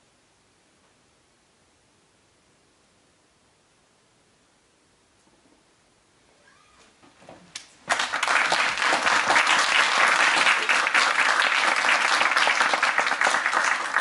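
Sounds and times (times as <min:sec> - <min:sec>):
audience applauding: 0:07.9 - 0:14.0.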